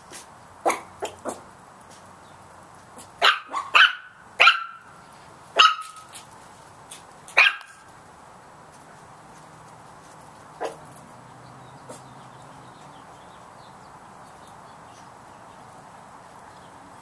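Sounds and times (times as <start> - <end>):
puppy barking: 0.6 - 1.5, 3.0 - 4.9, 5.6 - 6.1, 7.4 - 7.8, 10.6 - 10.9.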